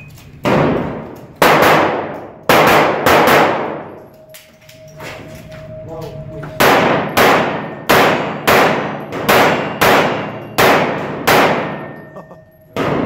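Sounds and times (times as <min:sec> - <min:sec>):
pistol shots echoing: 0:00.4 - 0:04.0, 0:06.6 - 0:12.1.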